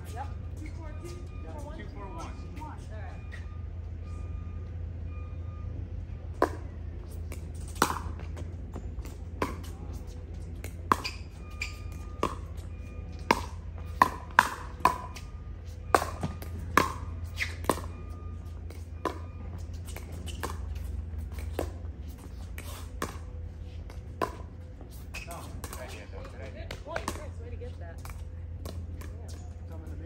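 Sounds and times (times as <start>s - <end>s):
paddles hitting plastic ball: 6.3s - 8.4s, 15.9s - 17.9s, 19.9s - 21.8s, 22.5s - 27.3s.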